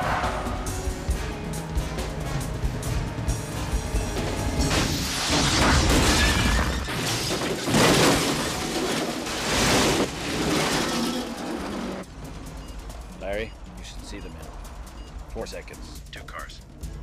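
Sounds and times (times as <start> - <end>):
car exploding: 4.6 - 12.0
metal and glass smashing: 4.6 - 12.0.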